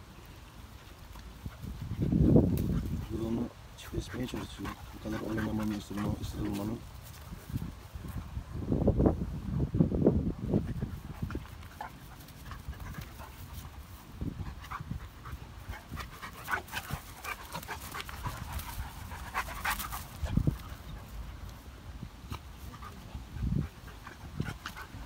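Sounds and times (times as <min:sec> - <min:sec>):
dogs panting: 0:00.6 - 0:07.6, 0:10.5 - 0:25.0
scuffling and rustling: 0:00.6 - 0:08.3.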